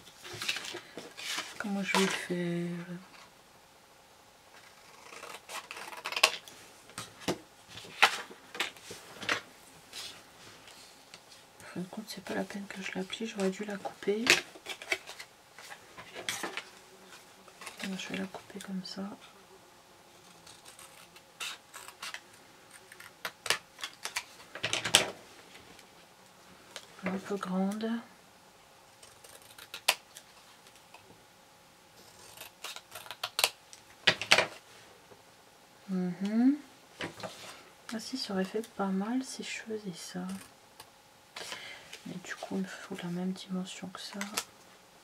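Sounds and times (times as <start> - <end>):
scissors snipping paper: 32.0 - 33.6.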